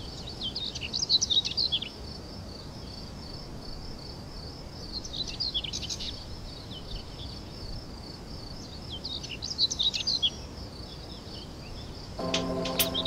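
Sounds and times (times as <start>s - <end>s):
small birds chirping: 0.0s - 3.4s, 4.8s - 7.8s, 8.4s - 12.2s
background hiss: 0.0s - 13.0s.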